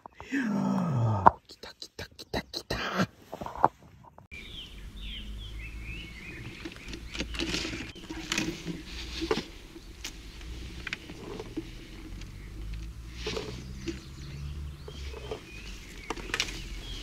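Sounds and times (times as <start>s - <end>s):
birds chirping: 0.0s - 17.0s
fishing gear knocks and rustles: 6.4s - 14.2s.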